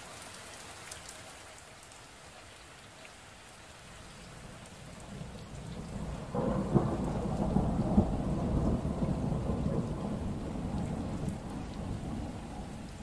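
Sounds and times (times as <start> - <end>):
steady rain: 0.0 - 13.0
thunder rumbling and cracking: 4.9 - 13.0.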